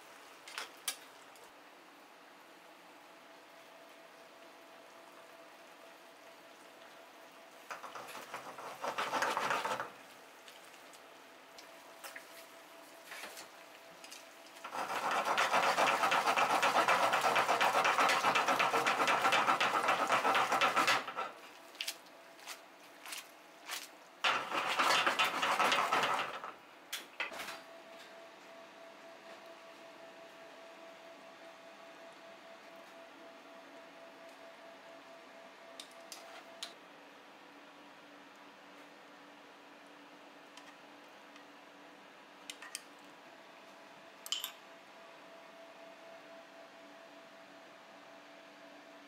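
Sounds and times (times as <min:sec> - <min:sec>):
metal tongs clicking on pan: 0:44.3 - 0:44.6.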